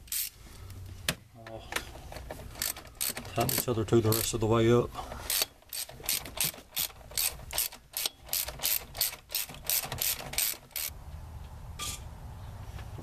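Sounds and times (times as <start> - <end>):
socket ratchet clicking: 2.5 - 4.4, 5.3 - 10.9.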